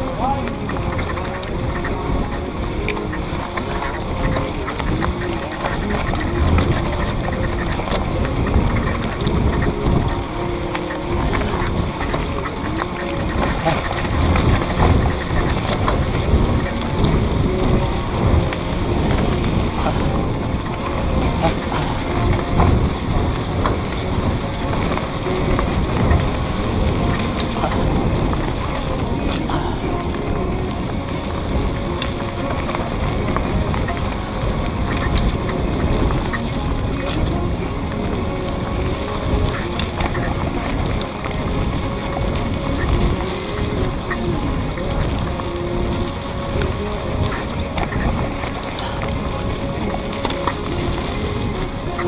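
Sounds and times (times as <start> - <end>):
wind rumble on microphone: 0.0 - 52.0.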